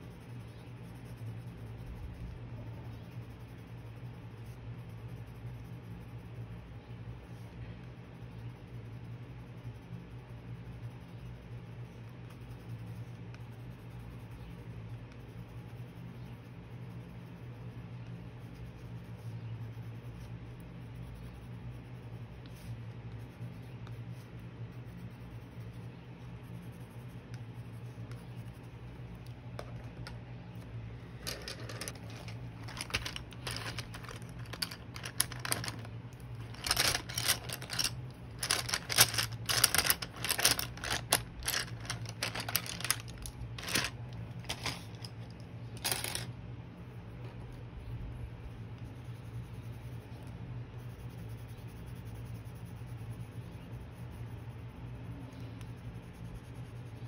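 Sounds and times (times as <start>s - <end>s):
pencil scribbling on paper: 0.0s - 30.0s, 48.1s - 57.0s
steady low hum: 0.0s - 57.0s.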